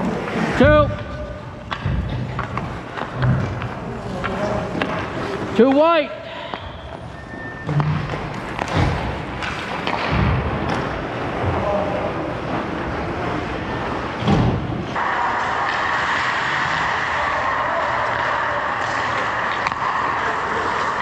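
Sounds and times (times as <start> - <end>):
skates scraping on ice: 0.0 - 0.8, 15.0 - 21.0
ice arena hiss: 15.0 - 21.0.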